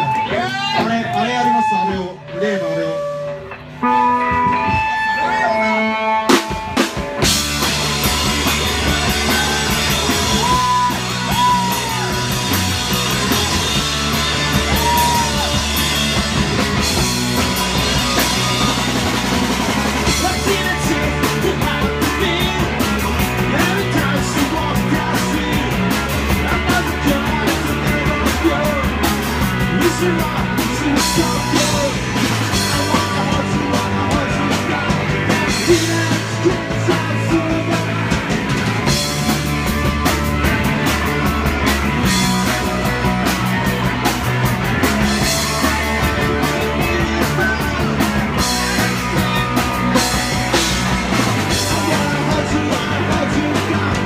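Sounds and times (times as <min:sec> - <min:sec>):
punk rock band playing: 0:00.0 - 0:54.0
pounding drum kit: 0:06.1 - 0:54.0
person singing: 0:08.4 - 0:13.8, 0:20.0 - 0:38.2, 0:45.2 - 0:49.4, 0:51.5 - 0:54.0.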